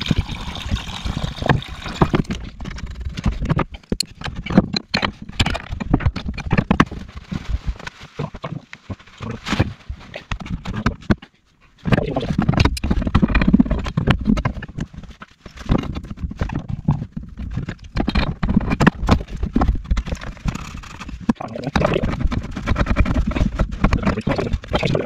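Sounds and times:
close rustle of handling: 0:06.1 - 0:17.8.

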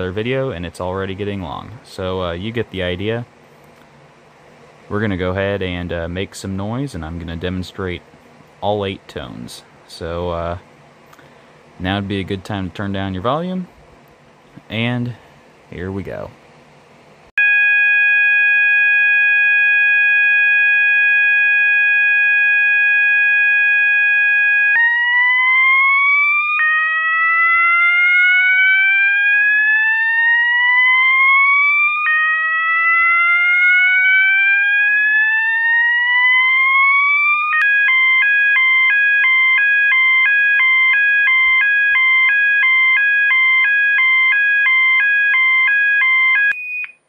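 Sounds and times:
alarm sounder continuous tone: 0:17.4 - 0:47.0
hi-lo alarm tone: 0:17.4 - 0:47.0.

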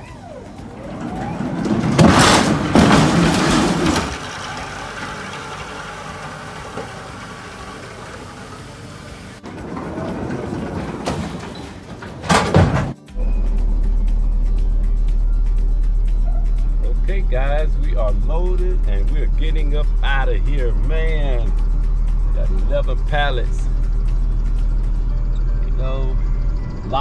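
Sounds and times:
pallet jack motor hum: 0:00.0 - 0:13.0
pallets clattering: 0:00.0 - 0:13.1
electric pallet jack rumbling: 0:00.0 - 0:14.0, 0:15.3 - 0:27.0.

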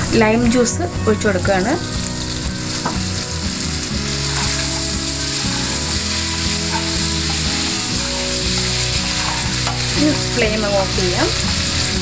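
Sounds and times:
sauce sizzling in a pan: 0:01.2 - 0:12.0
wooden spatula stirring: 0:02.8 - 0:12.0.

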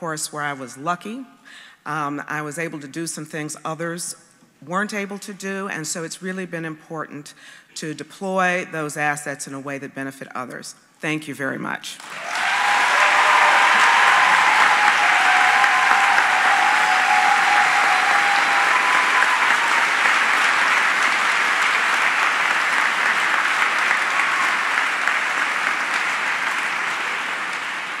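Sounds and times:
audience applauding: 0:12.0 - 0:28.0.

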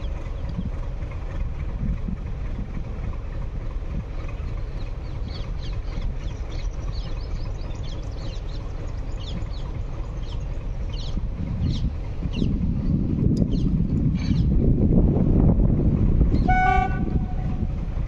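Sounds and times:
birds chirping: 0:00.0 - 0:01.3, 0:04.1 - 0:14.6
distant diesel locomotive rumbling: 0:00.0 - 0:18.0.

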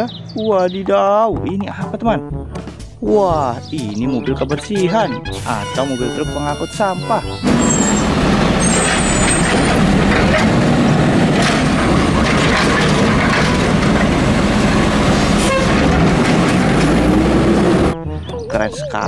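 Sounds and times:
garbage truck engine droning: 0:05.8 - 0:18.5
garbage truck arm lifting bin: 0:07.2 - 0:18.0.

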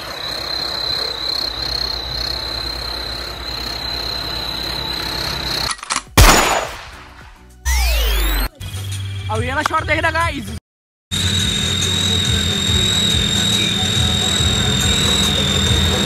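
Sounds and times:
tractor engine rumbling: 0:00.0 - 0:05.7, 0:11.2 - 0:16.0
crickets chirping: 0:00.0 - 0:05.8, 0:11.1 - 0:16.0.

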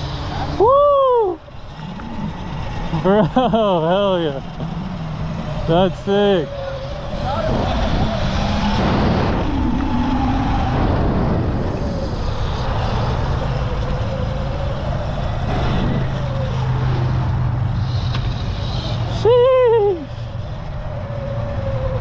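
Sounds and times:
electric motor whine: 0:00.0 - 0:22.0
steady low hum: 0:00.0 - 0:22.0
wind noise: 0:04.4 - 0:18.5.

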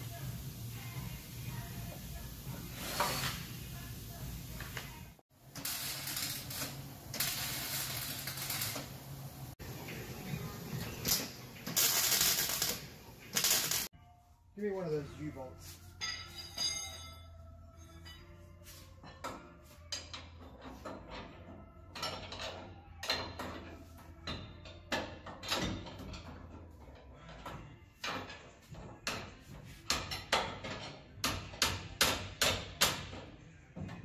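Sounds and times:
hand tools clanking on metal: 0:15.9 - 0:17.2.

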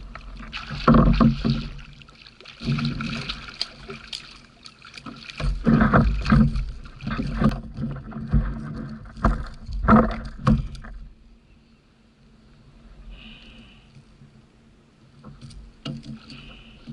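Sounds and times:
fish slapping against kayak hull: 0:00.2 - 0:11.0.

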